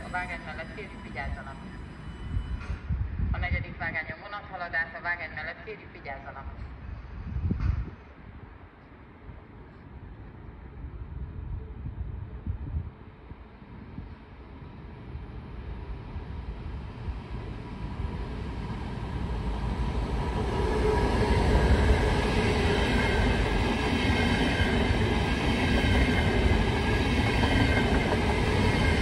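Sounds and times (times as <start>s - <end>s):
train wheels rumbling on rails: 17.1s - 29.0s.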